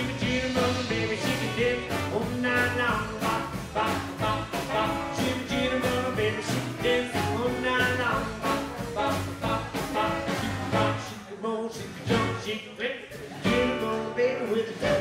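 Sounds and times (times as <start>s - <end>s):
drum kit: 0.0s - 11.2s, 11.9s - 12.5s, 13.2s - 15.0s
upright double bass: 0.0s - 11.2s, 11.8s - 12.6s, 13.2s - 15.0s
guitars: 0.0s - 12.6s, 13.2s - 15.0s
man singing: 0.0s - 15.0s.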